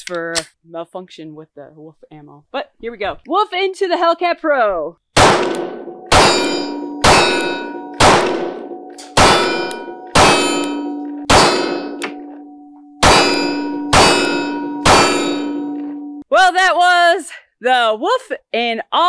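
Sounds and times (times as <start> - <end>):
pistol shots: 5.2 - 12.2, 13.0 - 16.0
ringing metal target: 5.3 - 16.2.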